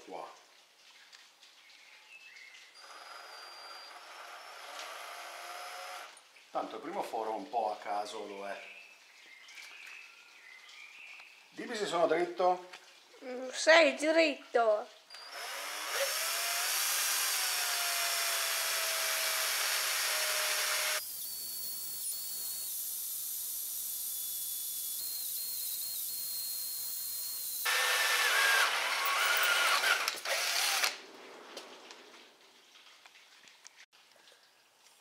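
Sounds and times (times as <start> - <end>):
electric drill boring metal: 2.8 - 6.2, 15.1 - 31.0.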